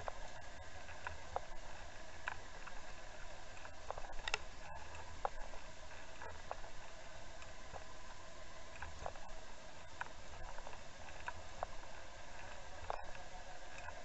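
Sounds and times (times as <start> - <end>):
faint ticks and clicks: 0.0 - 14.0.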